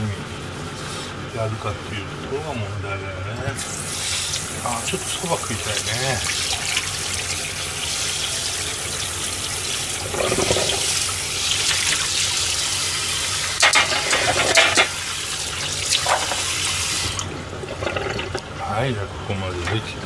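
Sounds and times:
tap water running into sink: 4.0 - 18.5
metal trays clattering in sink: 10.0 - 11.1, 13.6 - 15.0, 15.9 - 16.6.

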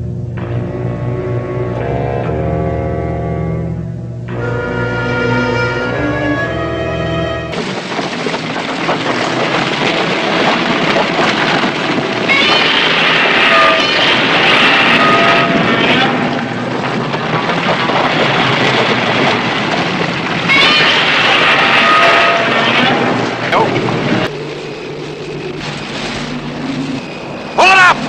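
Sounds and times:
heavy rumble of shifting rock: 7.5 - 28.0.

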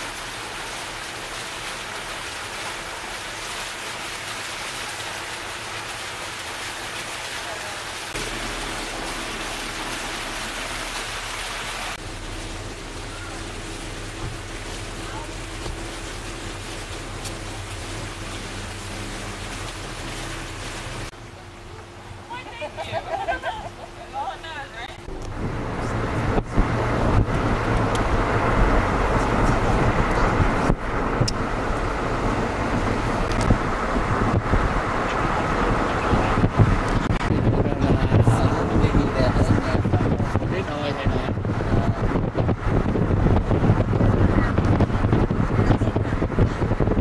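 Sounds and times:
fountain jets splashing into pool: 0.0 - 47.0
wind buffeting microphone: 25.0 - 47.0.

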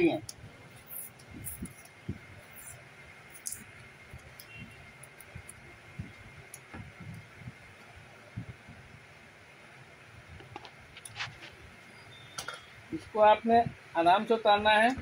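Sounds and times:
faint clicks and taps: 3.4 - 8.6, 10.3 - 11.5.

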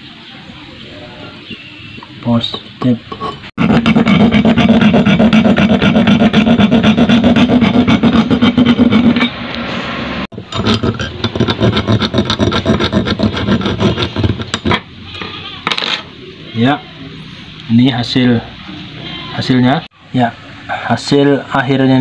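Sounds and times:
hacksaw cutting steel: 3.6 - 9.4, 10.4 - 14.9.

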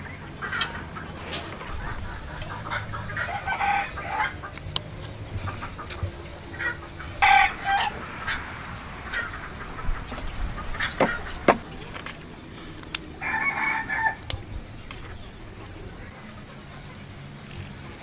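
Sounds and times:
chickens clucking: 0.0 - 18.0
rooster crowing: 2.6 - 4.5, 6.6 - 9.4, 13.2 - 14.3.

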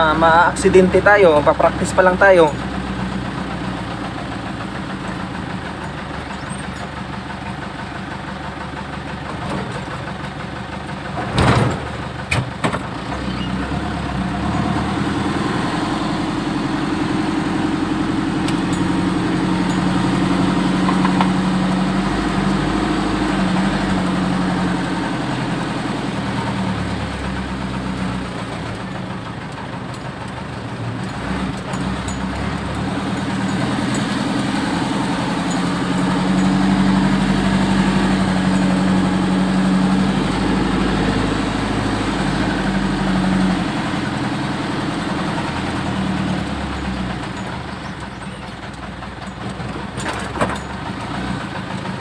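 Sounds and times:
truck engine running: 0.0 - 52.0
loud clunk: 11.2 - 12.9.

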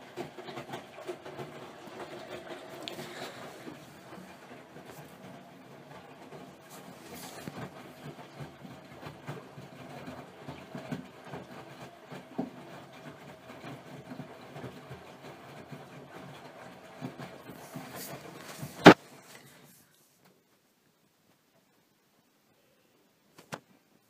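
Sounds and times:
washing machine drum churning: 0.0 - 19.3
wet laundry thumping: 18.6 - 19.0.

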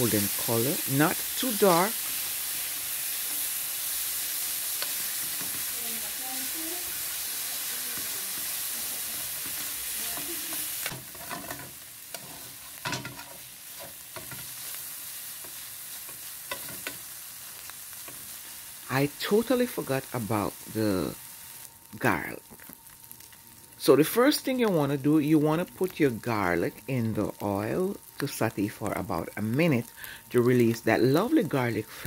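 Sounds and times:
fish sizzling in hot oil: 0.0 - 32.0
utensil scraping a pan: 9.2 - 14.6.

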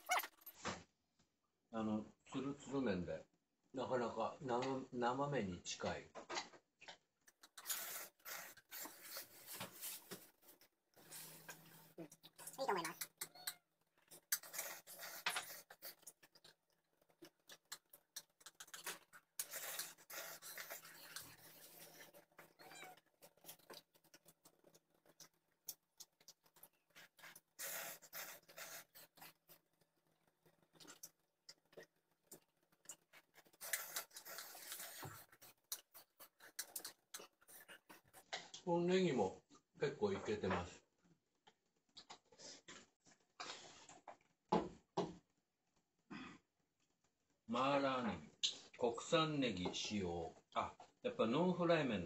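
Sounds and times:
man slurping noodles: 7.6 - 9.5, 19.4 - 22.1, 27.1 - 29.3, 33.4 - 38.0.

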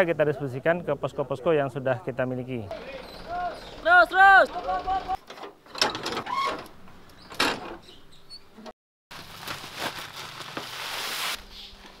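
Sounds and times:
plastic sacks rustling: 9.1 - 12.0.

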